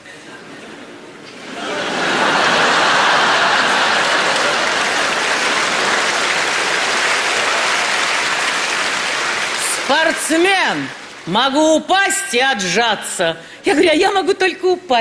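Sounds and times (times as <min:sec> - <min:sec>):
studio audience applauding: 0:01.9 - 0:11.6.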